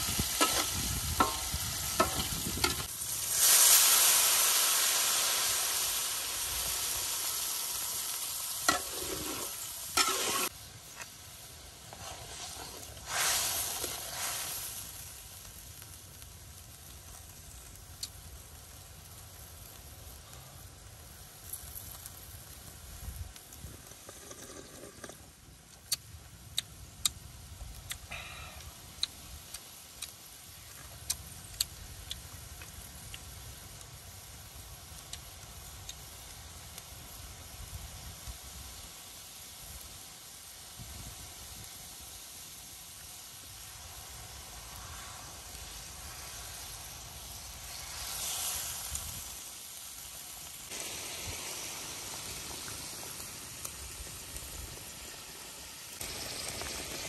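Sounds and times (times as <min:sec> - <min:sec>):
soup simmering: 0:00.0 - 0:16.5, 0:42.3 - 0:57.0
bubbling hiss: 0:00.0 - 0:57.0.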